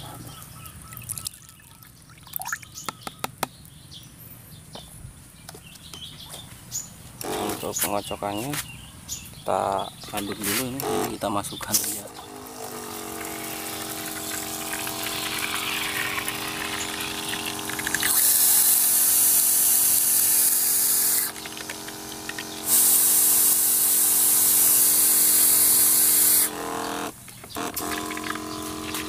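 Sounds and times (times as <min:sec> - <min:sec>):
sprayer pump humming: 0:07.2 - 0:08.6, 0:09.5 - 0:29.0
nozzle spraying liquid hissing: 0:12.8 - 0:26.9.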